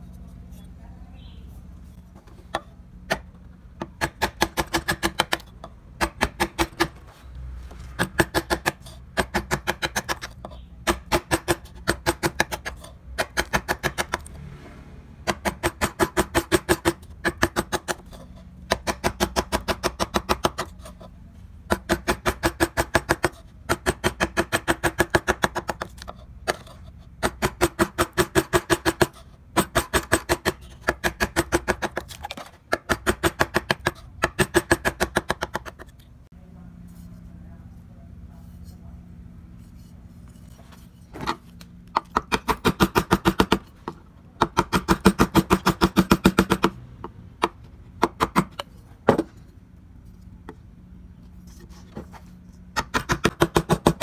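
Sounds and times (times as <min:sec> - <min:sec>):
chisel tapping into wood: 0:41.9 - 0:46.7.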